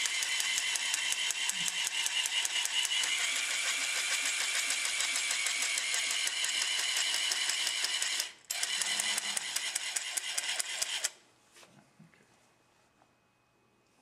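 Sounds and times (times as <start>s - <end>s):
robot motor whining and clicking: 0.0s - 11.1s.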